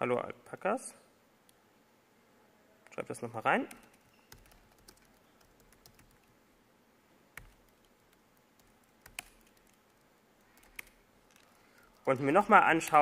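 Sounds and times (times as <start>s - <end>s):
typing on computer keyboard: 3.7s - 6.3s, 7.4s - 12.5s.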